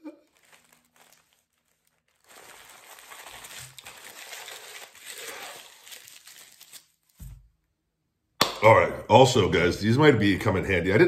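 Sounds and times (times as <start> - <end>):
wrapping crinkling and rustling: 0.0 - 7.5.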